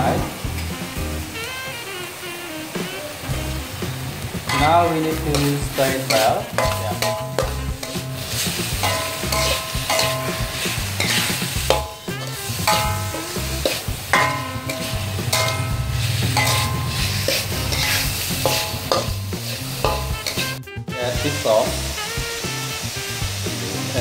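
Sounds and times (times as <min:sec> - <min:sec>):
food sizzling in a pan: 0:00.0 - 0:24.0
metal spatula scraping a wok: 0:04.4 - 0:20.6.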